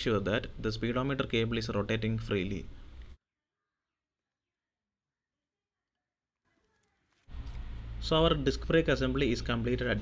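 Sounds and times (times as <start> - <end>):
man narrating: 8.0 - 10.0.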